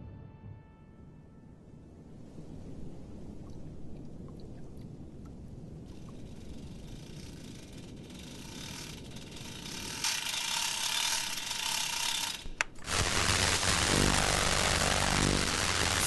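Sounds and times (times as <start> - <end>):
low hum: 0.0 - 16.0
hand crank ratcheting: 6.5 - 12.9
radio static hiss: 12.9 - 16.0.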